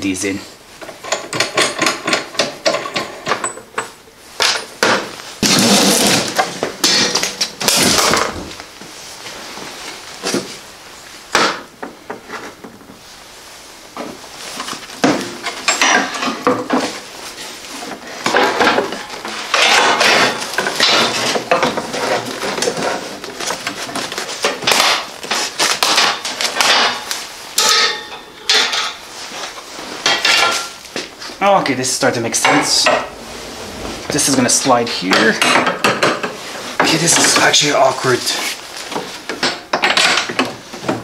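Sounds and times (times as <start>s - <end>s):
snowblower parts clattering: 14.6s - 34.3s.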